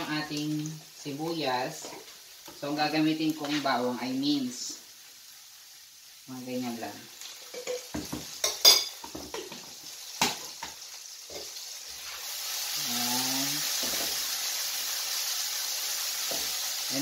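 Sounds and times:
onions and garlic sizzling in oil: 0.0s - 17.0s
spoon clinking in a pan: 7.5s - 9.4s.

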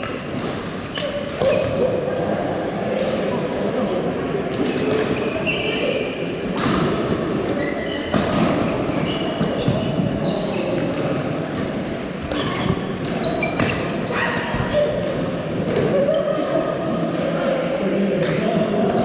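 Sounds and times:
murmur of voices: 0.0s - 19.0s
shoes squeaking on floor: 4.6s - 6.0s, 7.5s - 10.9s, 12.2s - 14.9s
racket hitting shuttlecock: 6.5s - 10.1s, 10.7s - 16.0s.

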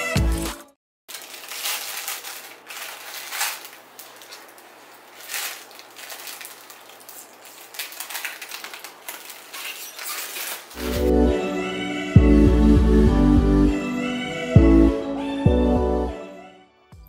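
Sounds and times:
plastic film peeling and crinkling: 0.2s - 11.1s.

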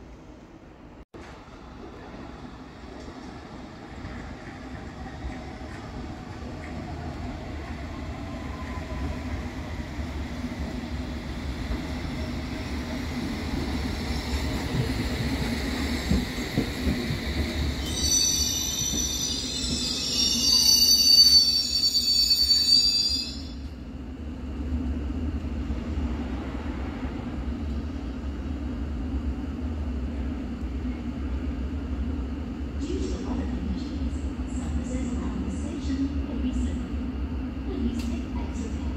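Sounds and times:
electric train slowing: 1.2s - 35.6s
high-pitched brake squeals: 17.8s - 23.6s.

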